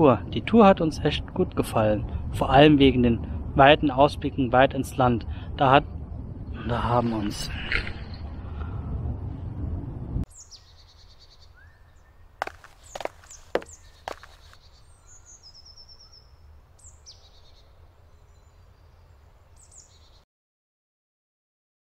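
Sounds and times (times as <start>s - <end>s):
faint low rumble: 0.2s - 10.3s
birds chirping: 10.3s - 20.2s.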